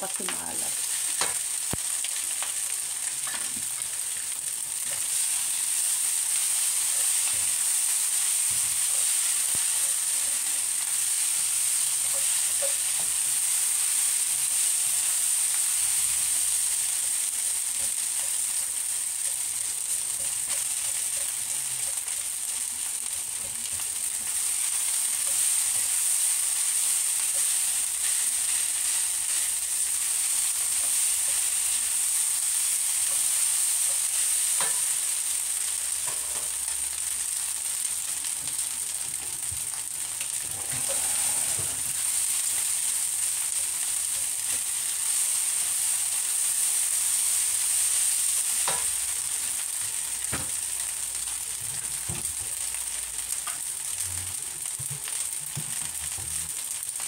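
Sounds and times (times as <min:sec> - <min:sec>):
rice sizzling in a wok: 0:00.0 - 0:57.0
spatula scraping wok: 0:02.4 - 0:36.8, 0:39.7 - 0:49.7.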